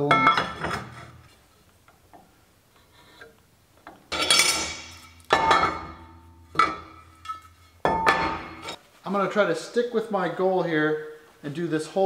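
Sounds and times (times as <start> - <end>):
steel tubes clanking: 4.1 - 8.8.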